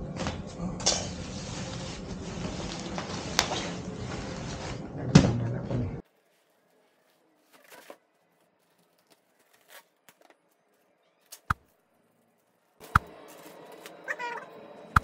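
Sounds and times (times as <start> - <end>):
packaging rustling and scraping: 1.1 - 4.8, 6.0 - 14.0.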